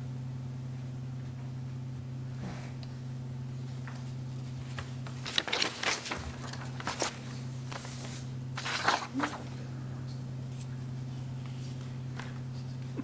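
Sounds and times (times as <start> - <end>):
steady low hum: 0.0 - 13.0
paper rustling: 3.9 - 9.6.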